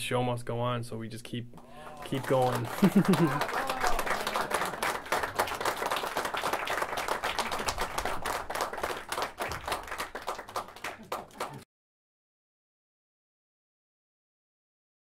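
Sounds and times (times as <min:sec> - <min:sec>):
audience applause: 0:01.6 - 0:11.6.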